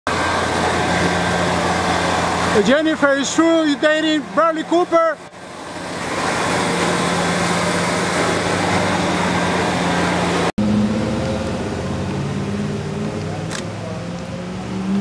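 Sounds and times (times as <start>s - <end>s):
motor engine running: 0.1s - 4.6s
low engine drone: 0.1s - 15.0s
traffic noise: 0.1s - 15.0s.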